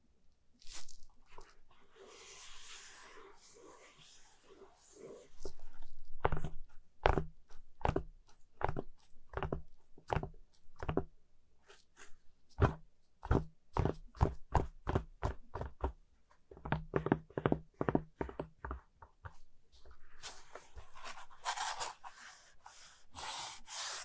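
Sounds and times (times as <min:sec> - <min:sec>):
rubbing on cardboard: 0:19.8 - 0:24.0.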